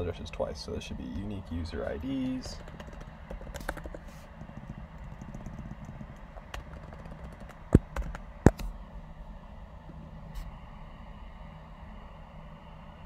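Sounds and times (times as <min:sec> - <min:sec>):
low steady hum: 0:00.0 - 0:13.0
keyboard key clicks: 0:02.4 - 0:08.7.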